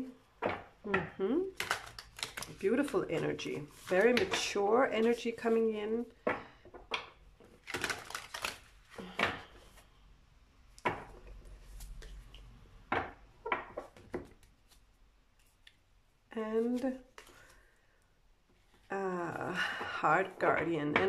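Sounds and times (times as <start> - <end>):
cards being handled: 1.5 - 5.6, 7.4 - 9.8, 13.7 - 15.8, 16.6 - 17.6.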